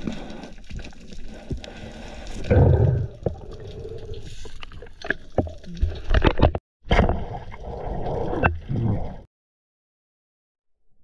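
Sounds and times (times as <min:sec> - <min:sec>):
sharp underwater clicks and knocks: 0:04.6 - 0:06.6.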